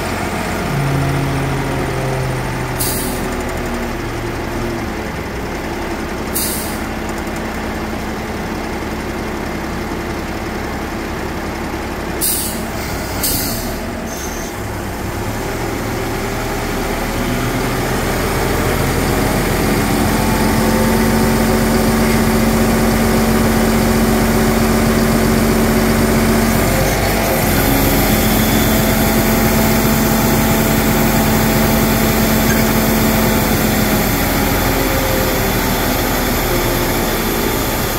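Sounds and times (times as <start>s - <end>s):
diesel truck engine running: 0.0s - 37.9s.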